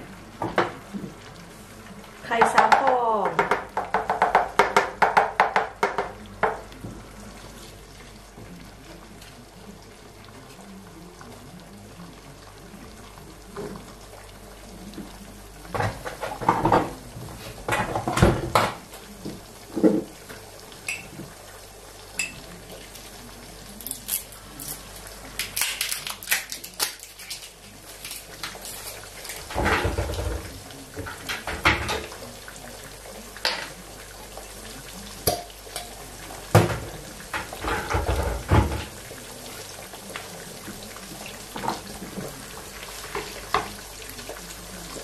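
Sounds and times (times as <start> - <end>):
eggs sizzling in a pan: 0.0 - 45.0
dishes and utensils clattering: 15.7 - 18.8, 28.1 - 32.1, 36.6 - 39.0.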